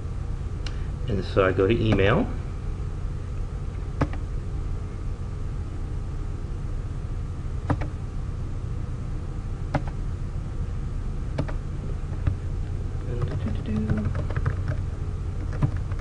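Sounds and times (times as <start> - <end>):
low background hum: 0.0 - 16.0
computer mouse clicks: 4.0 - 4.2, 7.7 - 7.9, 9.7 - 10.0, 11.4 - 11.6, 13.2 - 14.8, 15.4 - 16.0.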